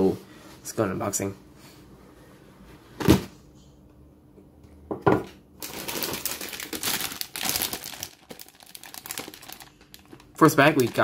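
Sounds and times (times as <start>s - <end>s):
plastic bags crinkling: 5.6s - 11.0s.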